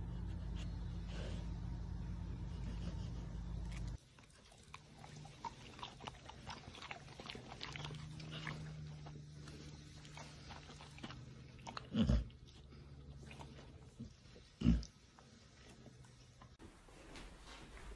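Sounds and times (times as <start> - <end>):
low hum: 0.0 - 17.9
dog chewing a treat: 3.6 - 14.0.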